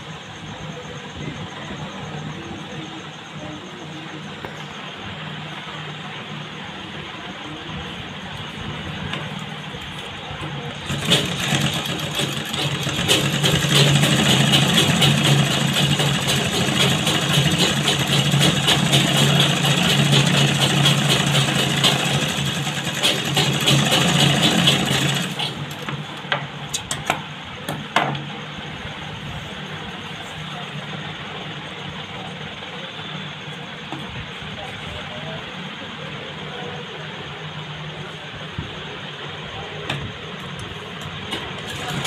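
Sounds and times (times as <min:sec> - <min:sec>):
sewing machine stitching: 0:10.8 - 0:25.9, 0:41.3 - 0:42.0.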